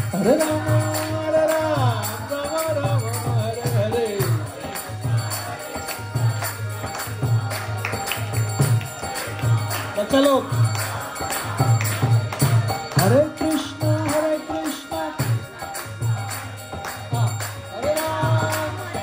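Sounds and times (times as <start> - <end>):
drum beat: 0.0 - 19.0
harmonium: 0.0 - 19.0
man singing: 0.0 - 19.0
clapping on the beat: 4.2 - 13.4, 14.0 - 19.0.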